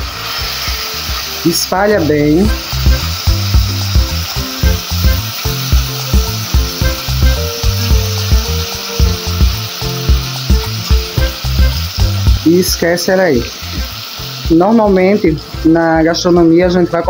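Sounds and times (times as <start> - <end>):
meat sizzling in a pot: 0.0 - 17.0
music with a steady beat: 2.4 - 12.6, 13.6 - 14.6.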